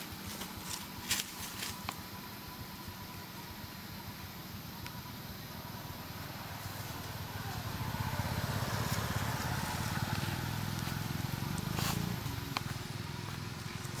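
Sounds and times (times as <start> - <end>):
small engine humming: 0.0 - 14.0.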